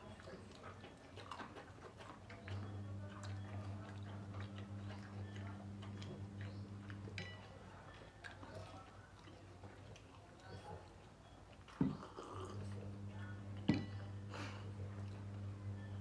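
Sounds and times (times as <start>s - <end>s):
people eating by hand: 0.0s - 16.0s
low hum: 2.6s - 7.2s, 12.6s - 16.0s.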